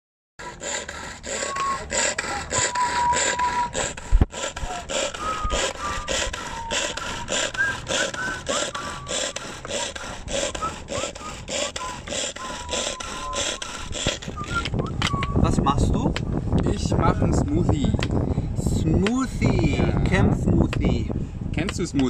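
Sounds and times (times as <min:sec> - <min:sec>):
pull-cord mixer whirring: 0:00.4 - 0:15.4.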